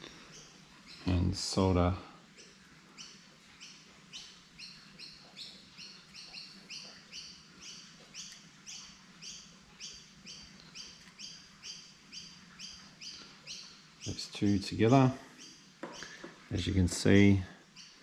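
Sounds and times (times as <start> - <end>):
bird chirping: 0.0 - 18.0.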